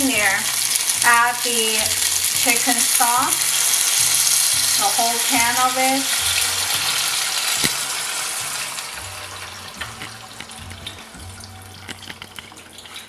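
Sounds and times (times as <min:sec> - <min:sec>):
hot oil sizzling: 0:00.0 - 0:13.0
stock pouring and splashing: 0:06.6 - 0:13.0.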